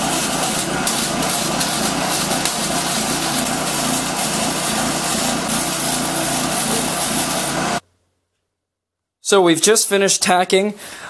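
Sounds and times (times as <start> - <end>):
arc welder crackling: 0.0 - 7.8.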